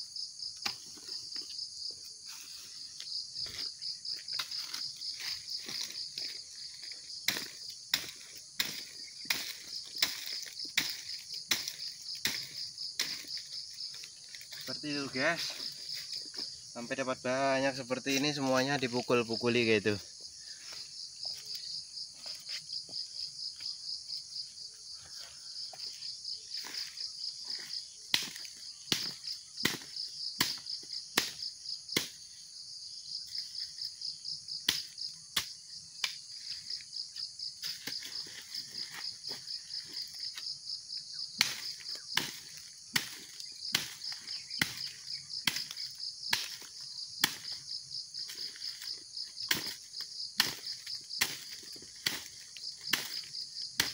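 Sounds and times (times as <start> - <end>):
high insect chorus: 0.0 - 53.9
blade striking fruit bunches: 4.2 - 16.4, 26.6 - 32.3, 41.2 - 53.9.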